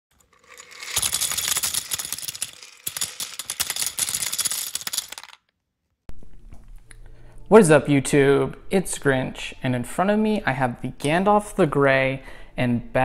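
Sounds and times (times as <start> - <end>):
plastic bricks clattering: 0.1 - 5.5.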